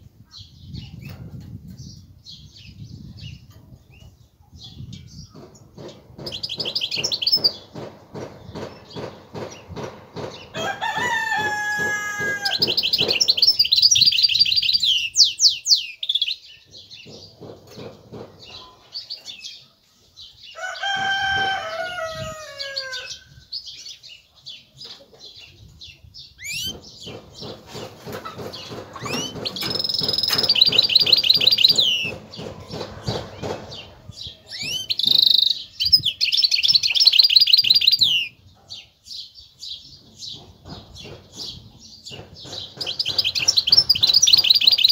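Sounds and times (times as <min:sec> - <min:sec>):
finch singing trills: 0:23.0 - 0:27.6, 0:28.4 - 0:44.9.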